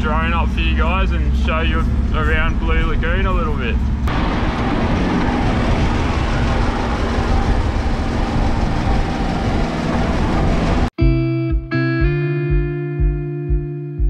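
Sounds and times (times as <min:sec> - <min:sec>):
vehicle engine and road rumble: 0:00.0 - 0:11.0
guitar music: 0:11.0 - 0:14.0.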